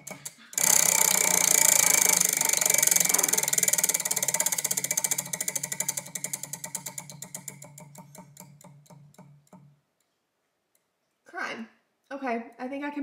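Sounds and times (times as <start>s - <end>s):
prize wheel clicking: 0.0s - 9.7s.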